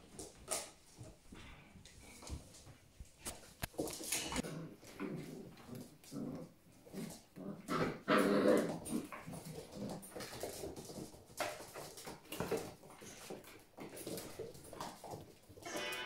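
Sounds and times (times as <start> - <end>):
puppies play-fighting and vocalising: 0.0 - 16.0.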